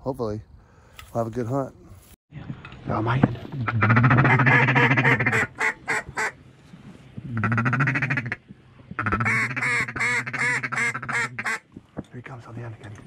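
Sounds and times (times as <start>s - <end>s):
duck call quacks: 3.7s - 6.4s, 7.3s - 8.4s, 9.0s - 11.6s.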